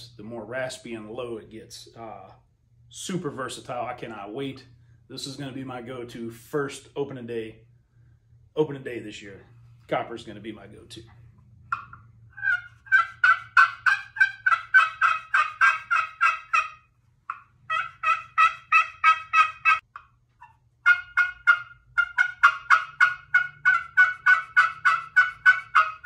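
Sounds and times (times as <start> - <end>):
turkey call yelps: 11.7 - 26.0.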